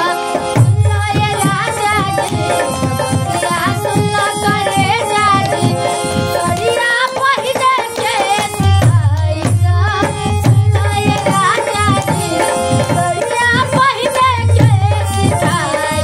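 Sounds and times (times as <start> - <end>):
held instrument notes: 0.0 - 8.8
hand drum: 0.0 - 16.0
woman singing: 0.0 - 16.0.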